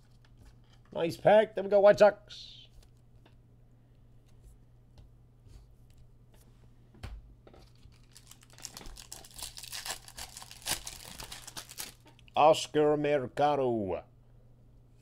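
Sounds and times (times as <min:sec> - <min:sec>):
foil wrapper crinkling and tearing: 0:07.6 - 0:12.2.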